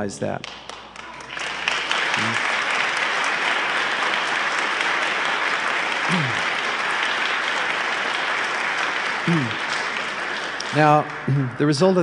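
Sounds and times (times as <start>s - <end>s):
audience applauding: 0.4s - 12.0s
voice calling from crowd: 2.1s - 2.5s, 6.0s - 6.6s, 9.2s - 9.7s.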